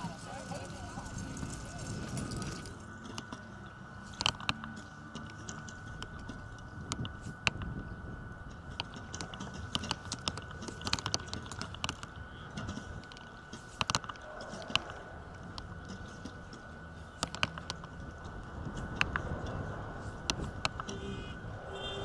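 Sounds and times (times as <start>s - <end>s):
wind rumbling on microphone: 0.0s - 22.0s
faint steady high tone: 20.6s - 22.0s.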